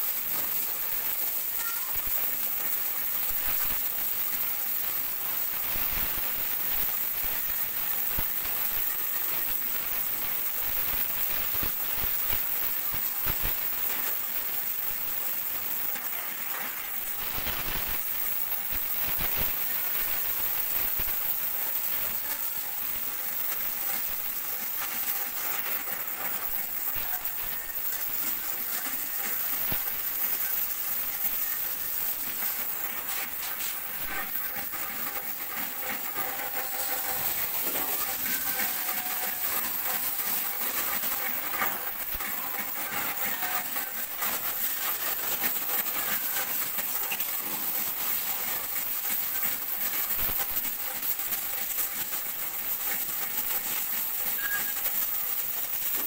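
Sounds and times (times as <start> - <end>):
cutting torch gas hiss: 0.0 - 56.0
sparks crackling: 0.0 - 56.0.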